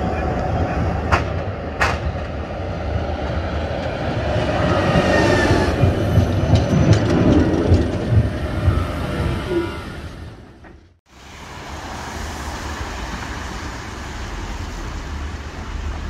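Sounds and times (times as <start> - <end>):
tram rumbling on rails: 0.0 - 16.0
wheels clicking over rail joints: 3.1 - 11.0.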